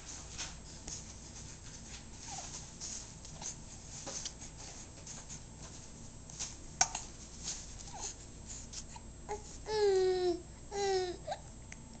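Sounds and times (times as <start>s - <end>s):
hanging toys rustling and clicking: 0.0s - 8.0s
baby cooing: 9.3s - 11.4s.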